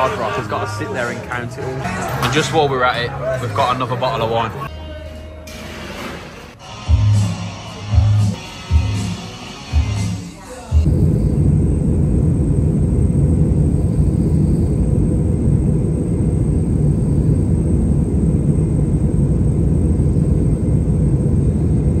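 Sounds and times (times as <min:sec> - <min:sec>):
airliner cabin rumble: 0:10.8 - 0:22.0.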